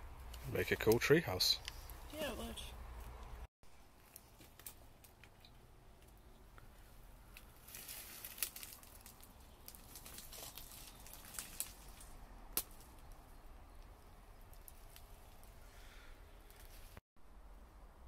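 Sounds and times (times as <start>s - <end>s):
leaves and twigs crackling underfoot: 3.8s - 15.7s, 16.4s - 17.0s.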